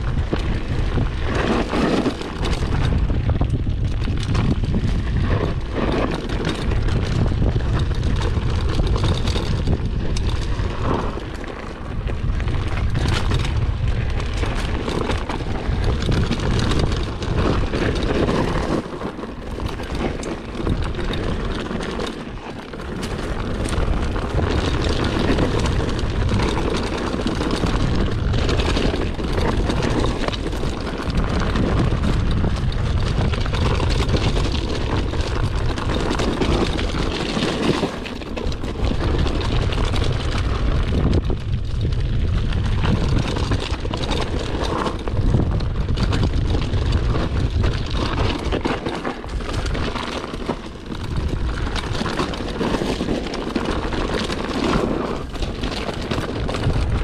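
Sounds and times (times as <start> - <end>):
bike tyre and frame rattle: 0.0 - 57.0
wind rushing over microphone: 0.0 - 57.0.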